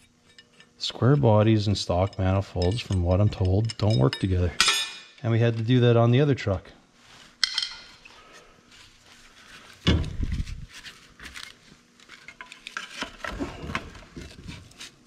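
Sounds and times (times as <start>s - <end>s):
metal clinks and knocks: 0.0s - 5.2s, 7.4s - 8.0s.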